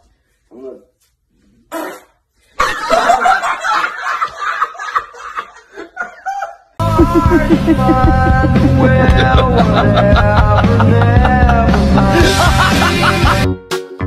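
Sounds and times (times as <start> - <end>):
man laughing hard: 2.6 - 13.5
music: 6.8 - 14.0.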